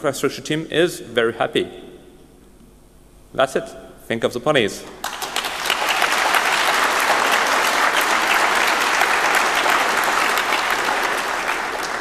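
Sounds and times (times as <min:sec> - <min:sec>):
audience applauding: 0:05.0 - 0:12.0.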